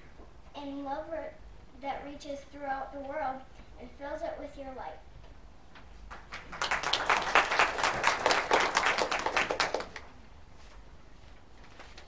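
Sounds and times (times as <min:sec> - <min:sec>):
people clapping: 0:06.1 - 0:10.2.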